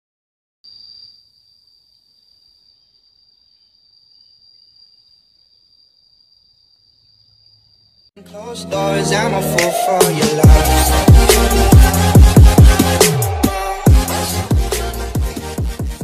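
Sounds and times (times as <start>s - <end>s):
insect trill: 0.6s - 8.2s
loud electronic music: 8.2s - 16.0s.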